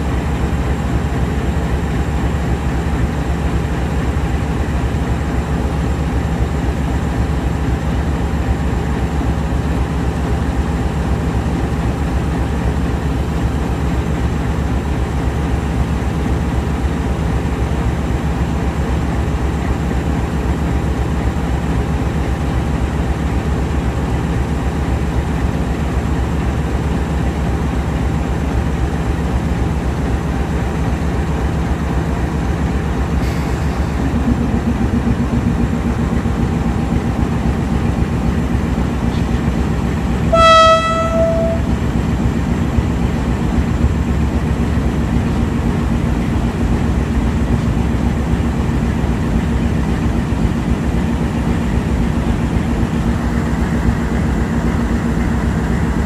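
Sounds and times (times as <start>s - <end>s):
diesel locomotive idling rumble: 0.0s - 56.0s
second engine hum: 33.2s - 46.7s
locomotive horn blast: 40.2s - 41.9s.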